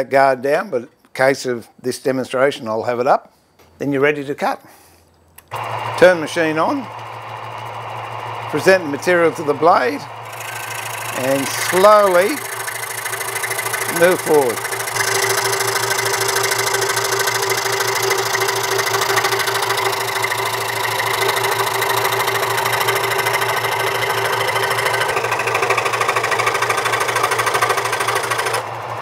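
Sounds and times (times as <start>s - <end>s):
saw motor hum: 5.4s - 29.0s
scroll saw blade chattering: 10.3s - 19.9s, 21.2s - 28.6s.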